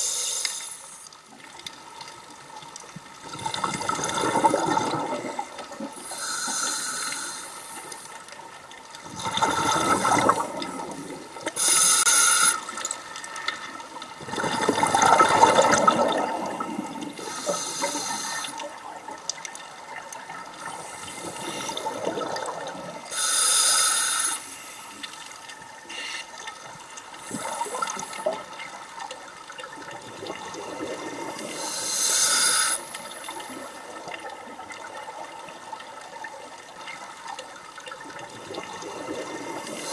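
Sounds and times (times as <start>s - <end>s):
regulator inhale hiss: 0.0s - 1.1s, 6.0s - 8.2s, 11.5s - 12.8s, 17.2s - 18.6s, 20.6s - 21.9s, 23.1s - 25.1s, 25.9s - 26.3s, 31.3s - 33.2s, 39.5s - 39.9s.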